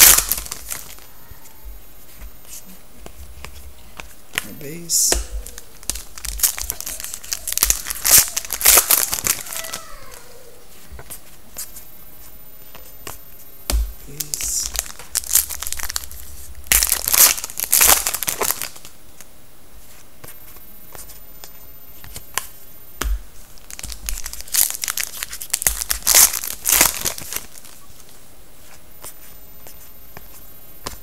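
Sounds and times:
wrapper tearing and crinkling: 0:00.0 - 0:01.1, 0:05.4 - 0:10.2, 0:14.2 - 0:18.9, 0:23.6 - 0:27.8
cards clicking and rustling: 0:03.0 - 0:10.2.

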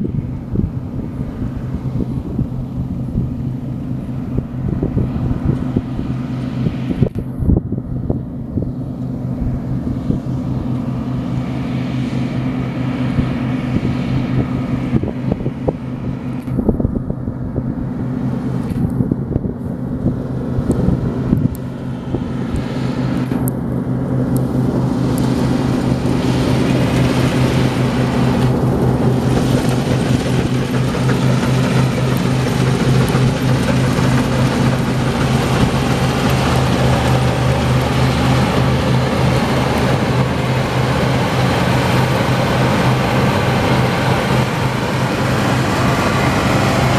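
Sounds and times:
diesel engine hum: 0:00.0 - 0:46.9
harvester machinery rushing: 0:00.0 - 0:46.9.

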